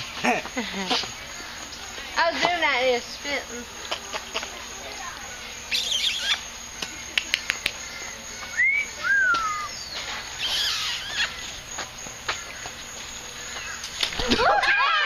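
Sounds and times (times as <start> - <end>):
birds chirping: 0.0 - 14.4
bird whistling calls: 5.7 - 6.5, 8.4 - 11.5.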